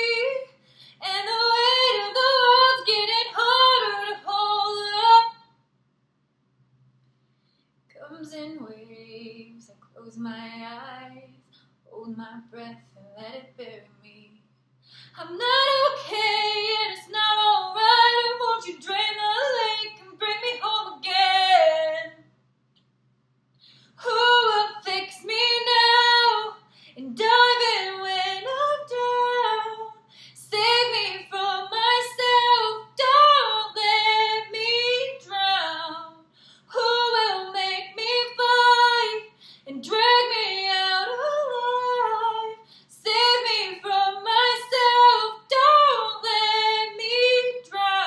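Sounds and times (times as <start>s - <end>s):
woman singing unaccompanied: 0.0s - 5.4s, 15.2s - 22.2s, 24.0s - 48.0s.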